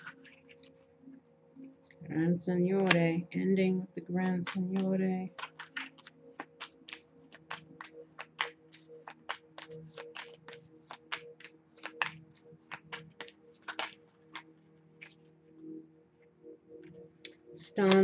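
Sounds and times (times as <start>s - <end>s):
soft background music: 0.0s - 18.0s
cards shuffling: 2.8s - 3.2s, 4.2s - 15.2s, 16.8s - 18.0s.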